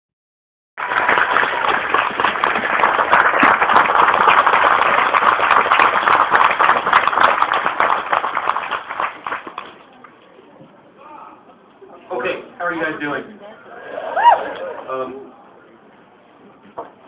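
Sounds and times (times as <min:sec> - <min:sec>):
audience applauding: 0:00.8 - 0:09.8.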